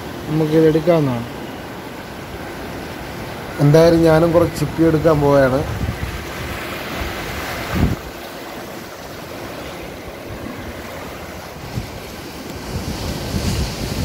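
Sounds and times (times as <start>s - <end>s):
surf washing against rocks: 0.0s - 14.0s
wind buffeting microphone: 2.1s - 14.0s.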